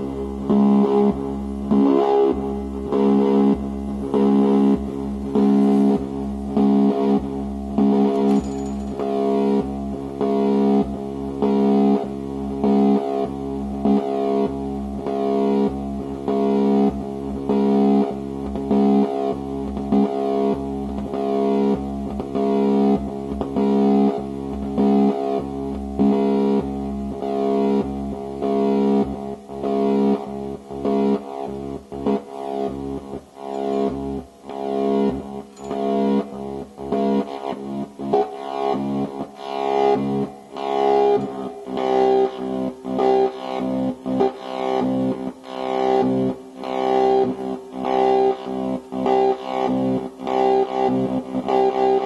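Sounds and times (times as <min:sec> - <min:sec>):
low pulsing synthesizer tone: 0:39.4 - 0:42.8.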